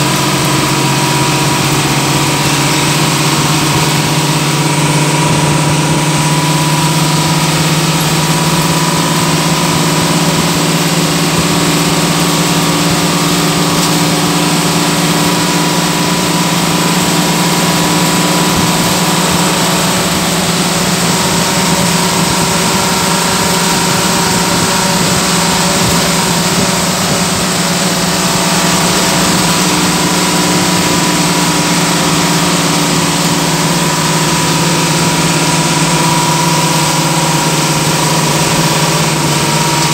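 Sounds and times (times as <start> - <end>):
bus engine droning: 0.0 - 39.9
road and wind noise: 0.0 - 39.9
thin whine: 0.0 - 39.9.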